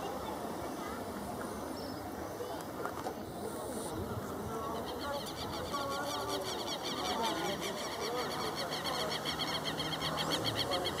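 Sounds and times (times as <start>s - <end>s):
bird calls: 4.6s - 11.0s.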